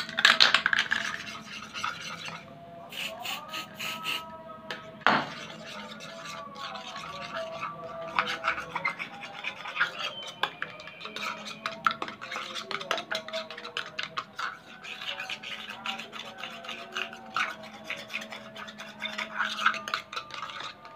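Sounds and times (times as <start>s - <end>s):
spoon stirring slime in bowl: 0.0s - 20.9s
spoon knocking bowl: 4.7s - 5.4s.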